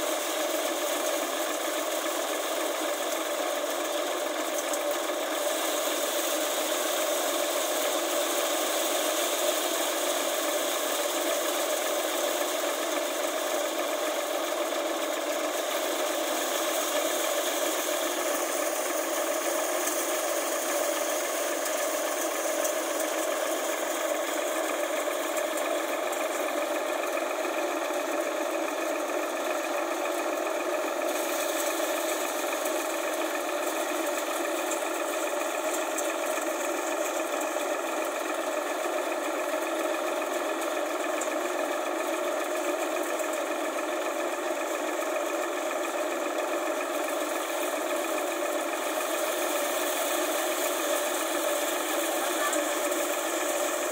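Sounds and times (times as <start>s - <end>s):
thresher running: 0.0s - 53.9s
diesel tractor engine: 17.2s - 53.9s.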